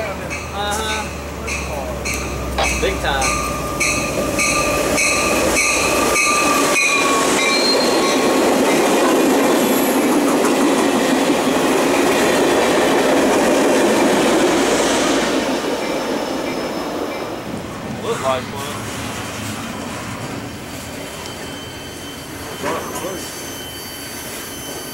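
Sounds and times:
train wheels clicking over rail joints: 0:00.0 - 0:21.4
rush of passing passenger train: 0:00.0 - 0:24.9
thin wheel squeal: 0:03.6 - 0:08.2, 0:21.0 - 0:24.9.

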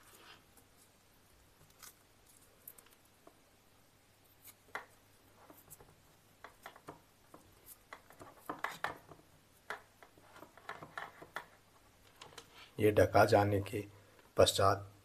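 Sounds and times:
electrical tape rustling and clicking: 0:04.4 - 0:12.8.

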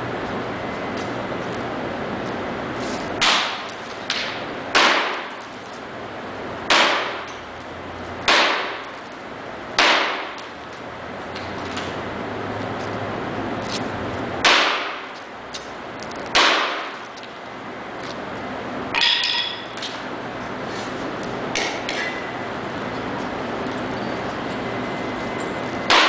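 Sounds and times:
steady background noise: 0:00.0 - 0:26.0
hammer striking foil-covered sculpture: 0:03.2 - 0:05.5, 0:06.7 - 0:07.4, 0:08.3 - 0:08.9, 0:09.8 - 0:10.5, 0:14.4 - 0:15.2, 0:16.3 - 0:17.0.

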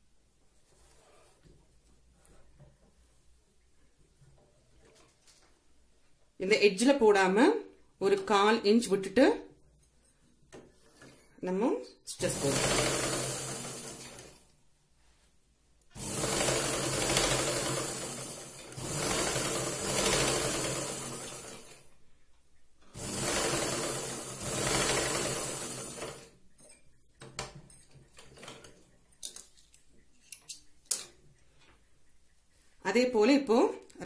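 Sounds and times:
sewing machine running: 0:12.2 - 0:14.4, 0:16.0 - 0:21.9, 0:22.9 - 0:26.4.

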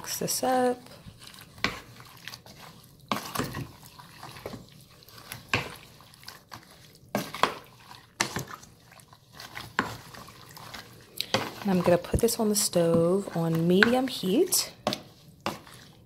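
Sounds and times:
beans sloshing in a pot: 0:00.0 - 0:16.0
wooden spoon clacking on pot: 0:07.1 - 0:08.6, 0:11.2 - 0:15.8.

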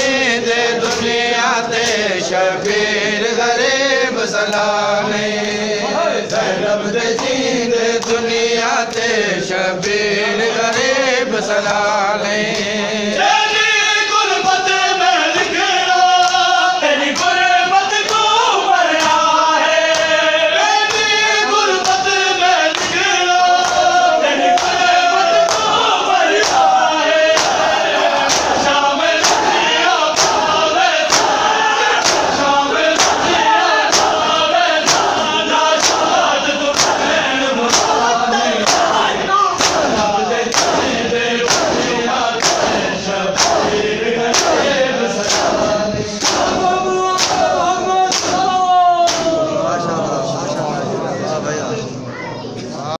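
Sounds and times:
men chanting in chorus: 0:00.0 - 0:51.8
hands slapping chests: 0:00.8 - 0:02.9, 0:16.1 - 0:16.5, 0:18.0 - 0:20.2, 0:21.8 - 0:49.4.

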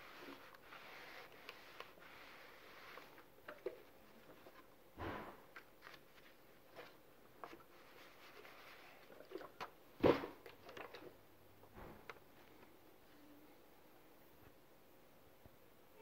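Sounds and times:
iron sliding over paper: 0:00.0 - 0:03.2.

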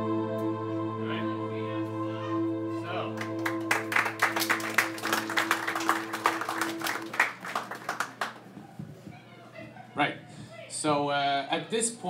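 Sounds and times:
music holding a chord: 0:00.0 - 0:07.6
audience applauding: 0:03.2 - 0:08.6.

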